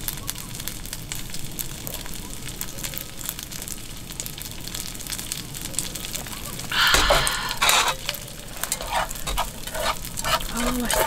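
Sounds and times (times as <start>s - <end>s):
food sizzling in a frying pan: 0.0s - 11.0s
breathy exhale: 6.7s - 9.3s.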